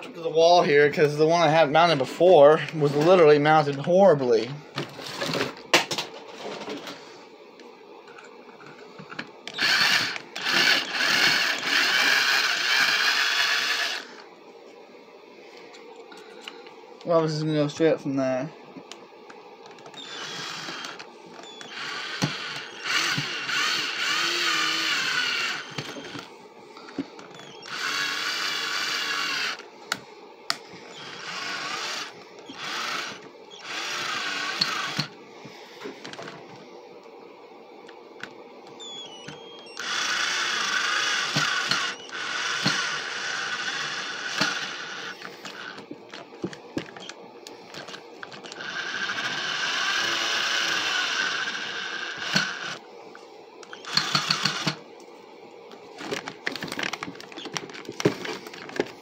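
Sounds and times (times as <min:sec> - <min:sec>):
cordless drill motor whine: 0:08.7 - 0:14.3, 0:19.7 - 0:29.7, 0:30.6 - 0:36.4, 0:38.7 - 0:52.9, 0:53.6 - 0:54.8.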